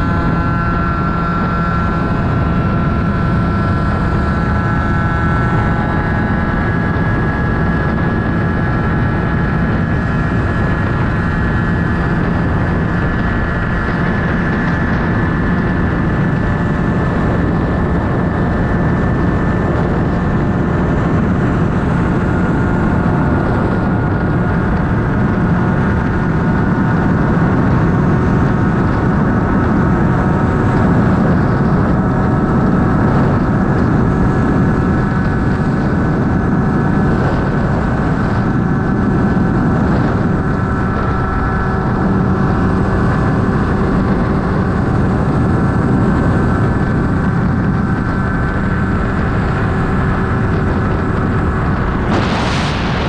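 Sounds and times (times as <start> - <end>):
scooter engine high-revving drone: 0.0 - 53.0
wind and road noise: 0.0 - 53.0.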